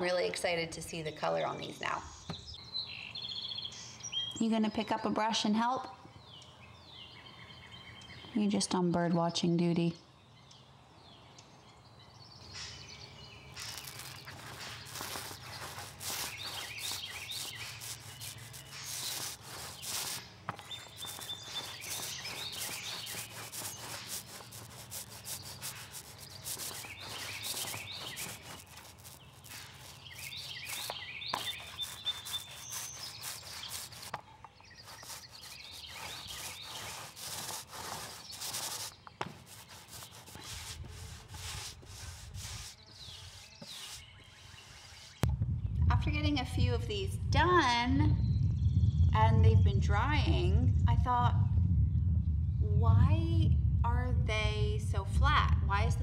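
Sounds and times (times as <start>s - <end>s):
birds chirping: 0.2s - 45.8s
paint roller rubbing on wood: 13.6s - 45.2s.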